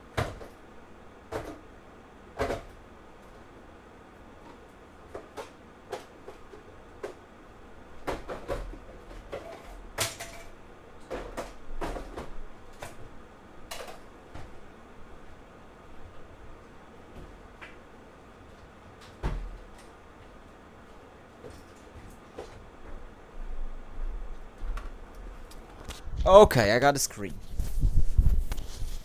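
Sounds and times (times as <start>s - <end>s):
boxes knocking and clattering: 8.0s - 13.0s.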